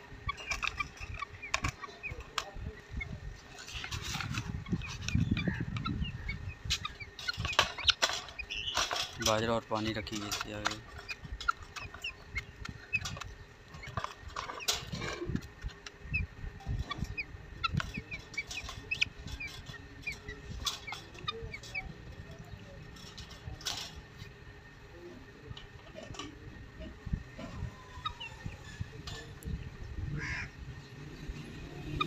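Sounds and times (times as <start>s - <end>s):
chickens clucking: 0.0s - 32.0s
clicks and knocks of a wire cage: 0.2s - 2.7s, 3.4s - 24.5s, 25.5s - 29.5s
high bird chirps: 0.2s - 9.2s, 10.0s - 15.0s, 15.6s - 23.4s, 27.4s - 29.4s.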